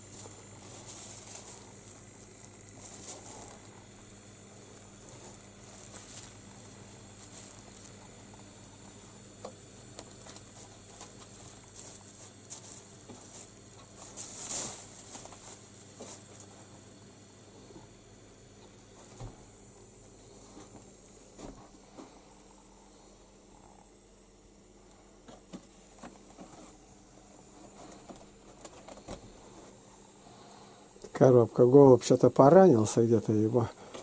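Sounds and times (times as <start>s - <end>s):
paper and plastic bags rustling: 0.0s - 4.0s, 4.7s - 8.9s, 9.8s - 16.5s.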